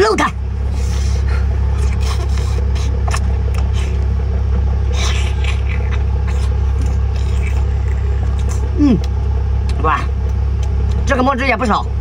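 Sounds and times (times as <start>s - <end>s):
low engine rumble: 0.0s - 12.0s
wet chewing and slurping: 0.7s - 4.1s, 4.9s - 9.8s.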